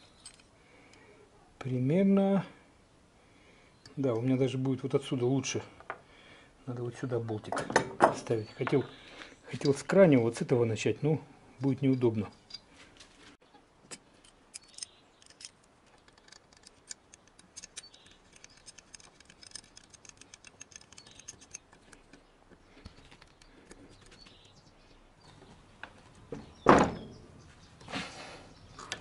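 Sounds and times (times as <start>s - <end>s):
small metallic clicks and taps: 13.9s - 24.5s.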